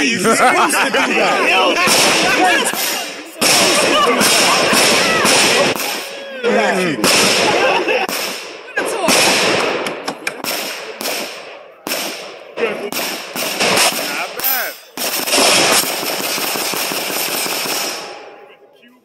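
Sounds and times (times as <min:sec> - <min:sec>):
pistol shots hitting steel targets: 0:09.1 - 0:18.3.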